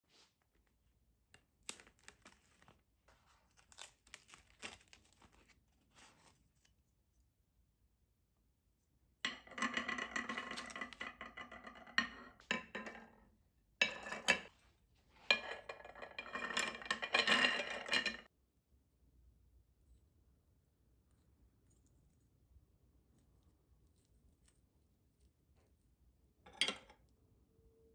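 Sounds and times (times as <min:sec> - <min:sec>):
plastic film crinkling and tearing: 0:01.6 - 0:06.3
shells clinking on a ceramic plate: 0:09.3 - 0:13.1, 0:13.8 - 0:14.5, 0:15.3 - 0:18.3.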